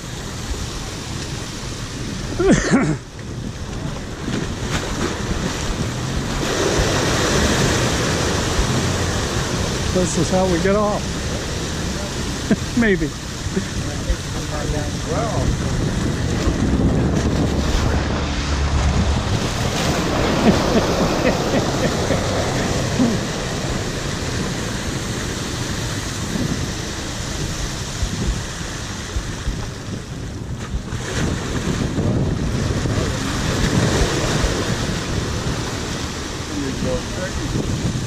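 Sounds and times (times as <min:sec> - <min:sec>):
water pouring and splashing: 0:00.0 - 0:38.0
wind buffeting microphone: 0:00.0 - 0:38.0
sea swell surging over steps: 0:04.0 - 0:30.1.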